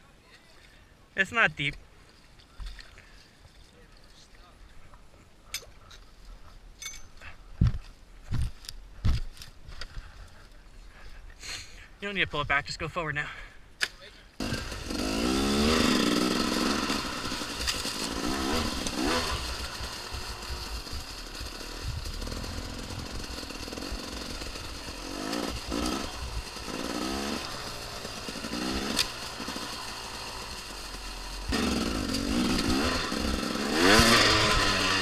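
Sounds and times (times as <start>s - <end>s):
dirt bike engine revving: 14.4s - 35.0s.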